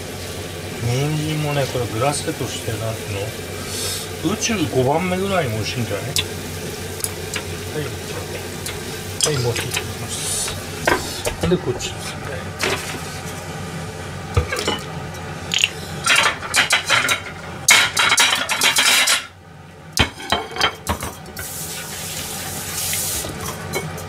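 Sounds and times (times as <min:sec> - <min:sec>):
steady hiss: 0:00.0 - 0:14.1, 0:21.4 - 0:23.5
dishes and utensils clinking: 0:08.7 - 0:13.4, 0:14.4 - 0:19.4, 0:20.0 - 0:21.5, 0:23.2 - 0:24.0.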